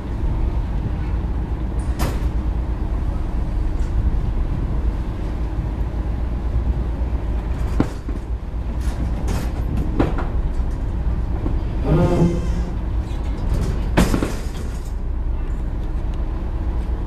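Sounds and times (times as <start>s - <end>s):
ferry engine rumbling: 0.0s - 17.0s.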